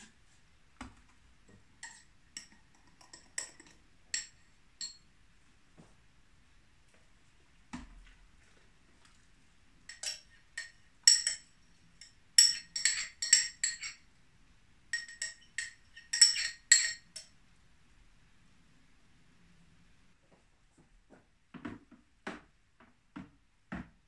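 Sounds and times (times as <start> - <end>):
spoon clinking against glass jug: 1.8 - 5.1, 9.9 - 14.1, 14.9 - 17.3.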